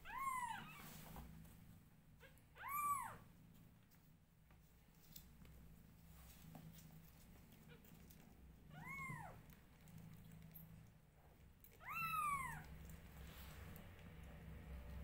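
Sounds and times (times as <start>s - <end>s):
kitten meowing: 0.0s - 0.8s, 2.2s - 3.2s, 8.7s - 9.4s, 11.7s - 12.7s.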